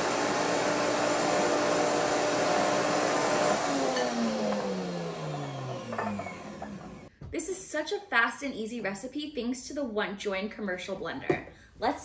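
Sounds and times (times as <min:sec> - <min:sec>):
blender motor running: 0:00.0 - 0:07.1.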